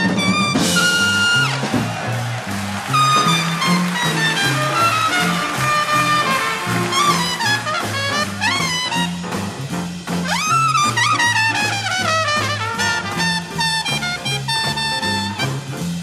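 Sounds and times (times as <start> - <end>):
trumpet solo with upward rips: 0.0 - 1.8, 2.7 - 9.2
big band jazz: 0.0 - 16.0
steady bass line: 0.4 - 16.0.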